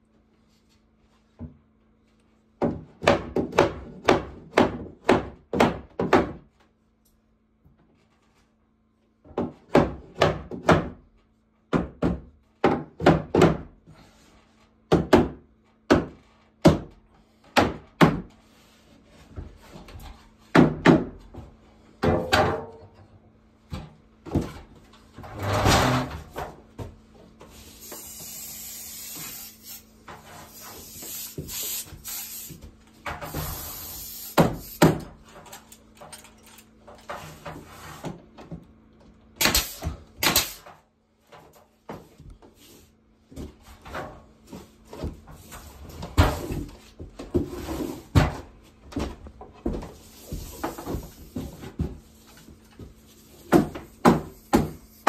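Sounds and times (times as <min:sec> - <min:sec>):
hammer blows on wooden boards: 0:02.6 - 0:06.5
steady hiss: 0:27.5 - 0:32.6, 0:33.3 - 0:34.9.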